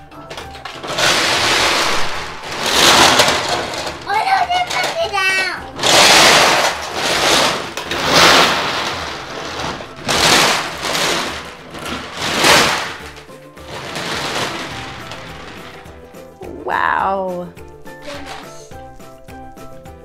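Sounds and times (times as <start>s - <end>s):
jelly beans rattling and pouring: 0.0s - 16.6s, 17.2s - 20.0s.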